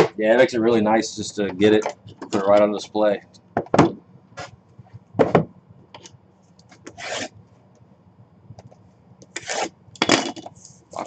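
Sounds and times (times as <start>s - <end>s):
cardboard scraping and rubbing: 6.8s - 7.3s, 9.4s - 9.7s.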